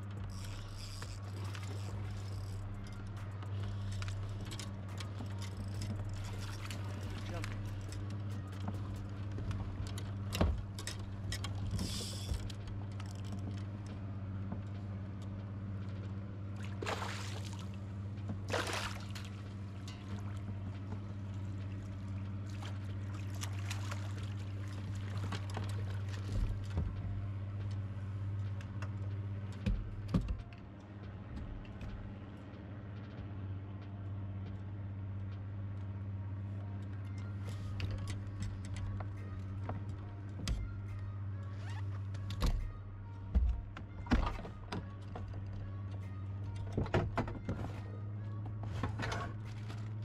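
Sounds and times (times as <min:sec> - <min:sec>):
low hum: 0:00.0 - 0:50.0
fish splashing in water: 0:18.5 - 0:19.4.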